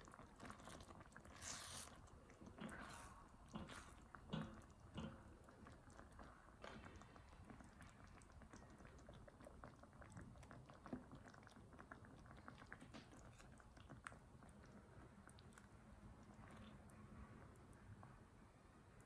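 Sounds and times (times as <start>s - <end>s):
sauce simmering and bubbling: 0.0s - 19.0s.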